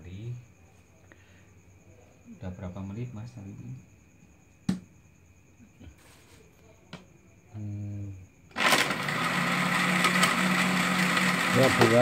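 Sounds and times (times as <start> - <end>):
blender running: 8.5 - 12.0.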